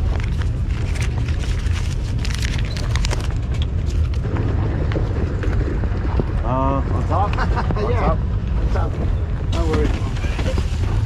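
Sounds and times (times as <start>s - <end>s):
wind buffeting microphone: 3.3s - 11.0s.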